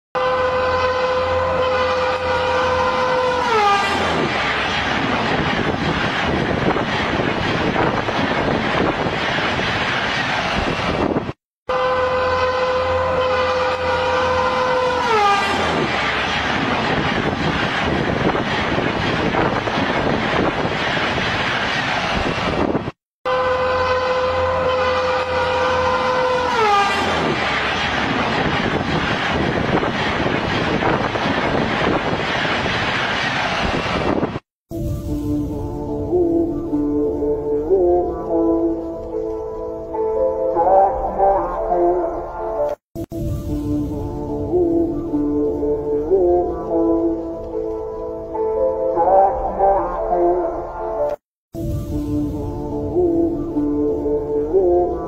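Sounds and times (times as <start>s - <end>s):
train horn blowing: 0.2s - 4.3s, 11.7s - 16.3s, 23.2s - 27.6s
train rushing past: 0.2s - 55.0s.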